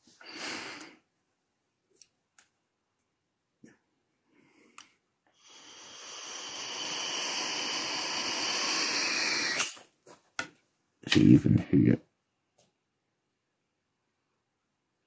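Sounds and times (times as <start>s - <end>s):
person breathing out: 0.2s - 1.0s, 4.3s - 9.8s.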